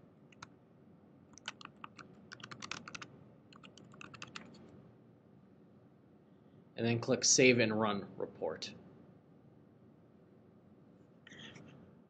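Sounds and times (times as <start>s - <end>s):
typing on keyboard: 1.4s - 4.6s.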